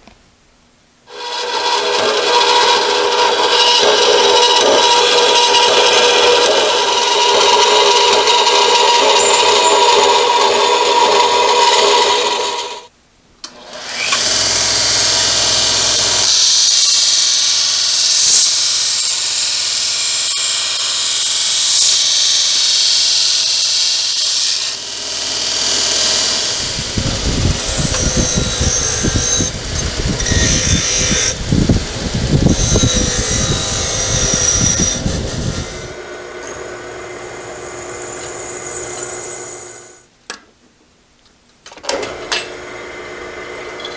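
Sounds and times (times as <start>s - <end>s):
bandsaw cutting metal: 1.1s - 12.9s, 13.5s - 40.0s
belt grinder grinding steel: 1.1s - 12.9s, 13.8s - 40.0s, 42.0s - 43.9s
rough machining noise: 1.1s - 12.9s, 13.7s - 40.0s
drill press drilling metal: 1.3s - 12.8s, 22.8s - 26.9s.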